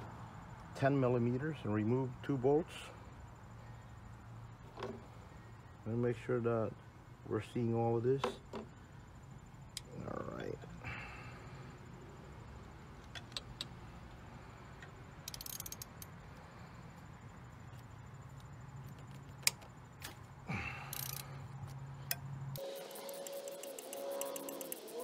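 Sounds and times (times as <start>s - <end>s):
metal clicks: 14.8s - 16.2s, 20.9s - 22.3s
ratchet wrench clicking: 14.8s - 16.2s, 20.9s - 25.0s.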